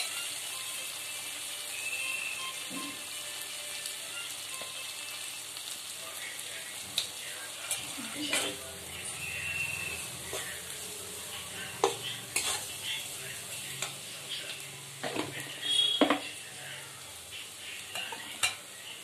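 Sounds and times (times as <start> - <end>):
onions and tomatoes sizzling in oil: 0.0 - 19.0
metal spatula scraping pan: 7.7 - 10.8, 11.4 - 12.8.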